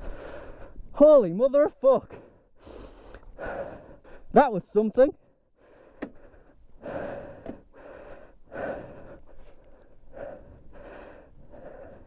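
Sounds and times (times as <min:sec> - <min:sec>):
man breathing heavily: 0:00.0 - 0:01.0, 0:02.1 - 0:04.4, 0:05.2 - 0:12.0.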